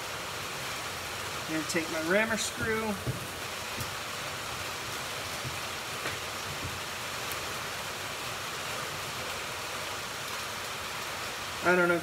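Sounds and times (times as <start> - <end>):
rain on a metal roof: 0.0 - 12.0.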